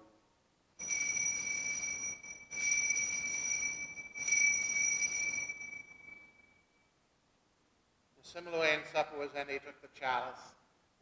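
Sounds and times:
altar bells jangling: 0.8s - 6.7s.

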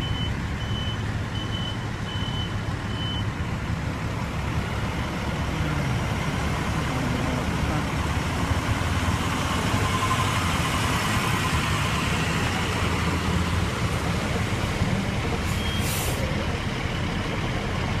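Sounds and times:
engines rumbling: 0.0s - 18.0s
air brake hiss: 15.5s - 16.3s.

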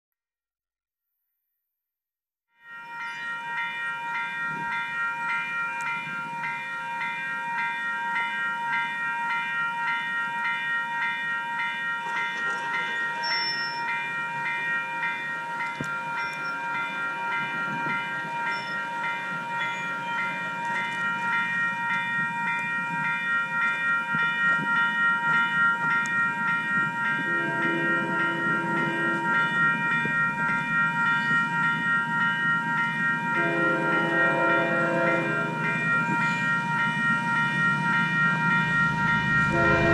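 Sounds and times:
level-crossing bell ringing: 2.6s - 39.9s
train rumble: 12.0s - 39.9s
train horn chord: 27.2s - 29.6s, 33.3s - 36.6s, 38.9s - 39.9s.

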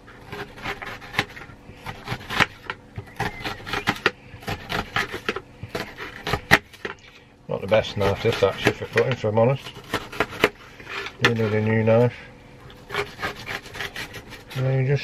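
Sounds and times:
knife dicing onion on a plate: 0.3s - 6.9s.

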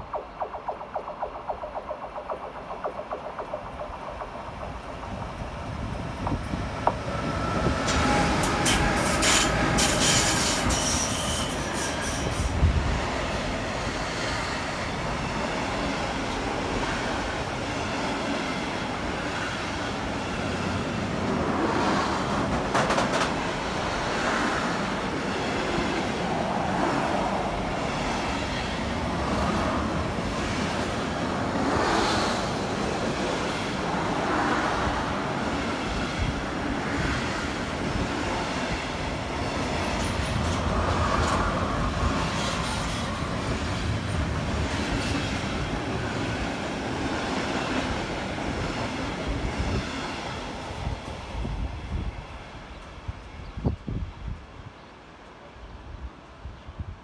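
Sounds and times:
train cars rumbling and clattering: 0.0s - 52.2s
train wheels squealing: 7.0s - 12.6s.

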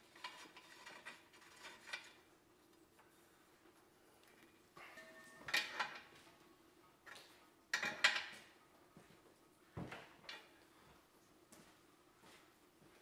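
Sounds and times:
wrench clinking and scraping metal: 0.0s - 2.2s, 5.0s - 6.1s.

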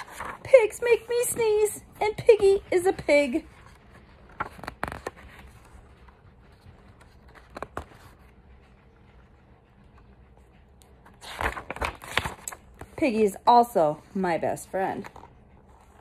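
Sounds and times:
page scraping: 0.0s - 1.3s, 2.4s - 9.3s, 11.0s - 13.0s
paper pages rustling: 0.0s - 13.3s, 14.7s - 16.0s.

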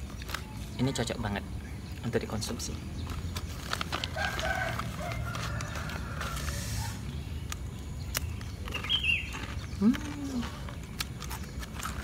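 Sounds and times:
snack packet crackling: 0.0s - 0.8s, 2.4s - 12.0s
rooster crowing: 4.0s - 7.0s.

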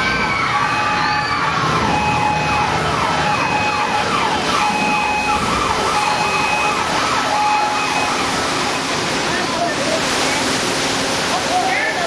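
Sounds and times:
sirens wailing: 0.0s - 9.8s
constant rushing noise: 0.0s - 12.0s
steady alarm tone: 0.6s - 9.0s.

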